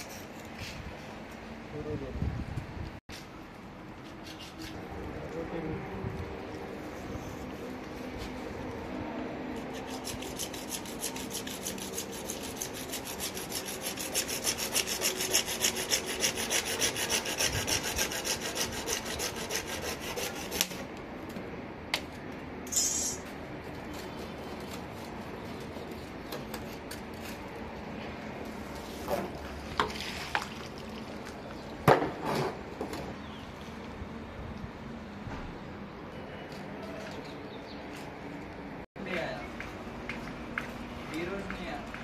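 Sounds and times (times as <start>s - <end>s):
hand saw cutting plastic pipe: 9.6s - 20.9s
brief hiss: 22.7s - 23.2s.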